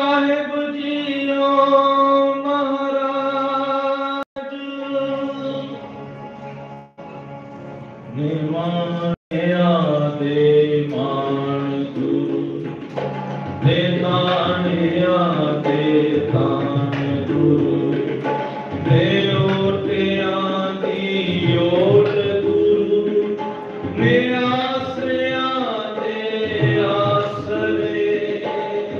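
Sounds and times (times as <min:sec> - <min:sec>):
harmonium: 0:00.0 - 0:28.9
men singing a hymn: 0:13.6 - 0:28.9.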